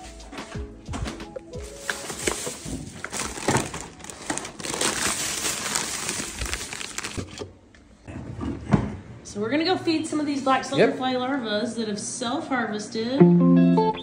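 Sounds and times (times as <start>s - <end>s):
plastic bags crinkling: 1.4s - 7.4s.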